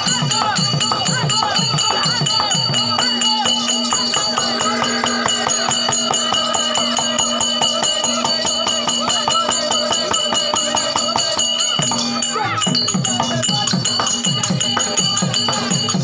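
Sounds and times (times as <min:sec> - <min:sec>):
drum beating fast rhythm: 0:00.0 - 0:16.0.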